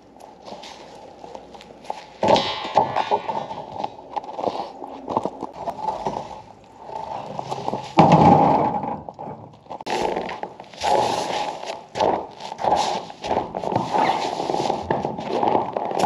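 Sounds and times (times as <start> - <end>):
footsteps crunching through snow: 0.0 - 2.2, 9.9 - 16.0.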